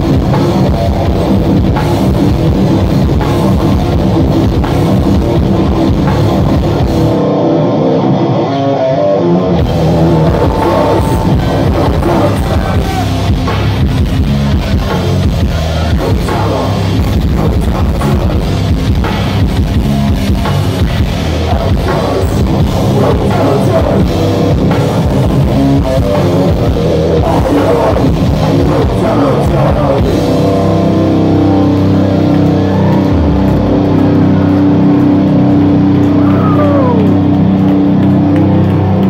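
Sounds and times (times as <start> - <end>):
drum kit: 0.0 - 8.2, 9.4 - 39.0
distorted electric guitars: 0.0 - 39.0
metal band playing live: 0.0 - 39.0
vocals: 9.8 - 13.8, 15.0 - 19.1, 21.3 - 31.9.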